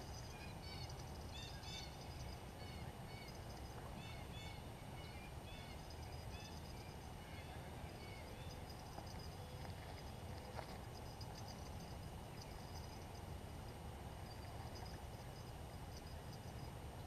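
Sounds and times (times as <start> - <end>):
small birds chirping: 0.0 - 13.2
steady low rumble: 0.0 - 17.0.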